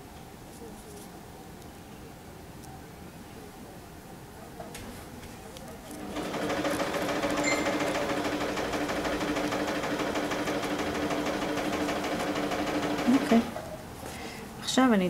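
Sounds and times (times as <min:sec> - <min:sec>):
sewing machine running: 0:06.0 - 0:13.6.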